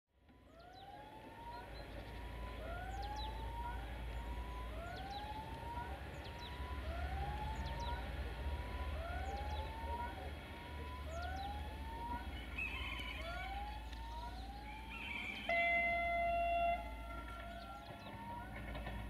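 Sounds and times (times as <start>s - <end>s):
crossing sounder electronic whoop: 11.1s - 18.6s.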